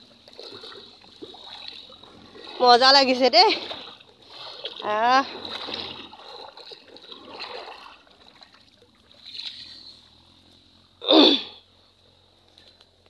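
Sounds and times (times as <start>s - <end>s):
footsteps splashing through water: 0.2s - 9.8s.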